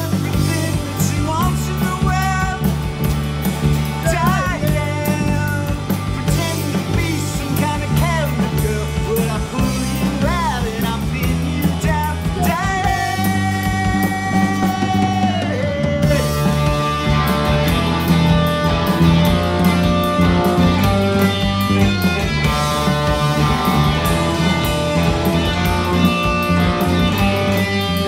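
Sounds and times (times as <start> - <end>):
man singing: 0.0 - 2.9, 4.0 - 17.0
drum kit: 0.0 - 28.0
electric bass: 0.0 - 28.0
electric guitar: 0.0 - 28.0.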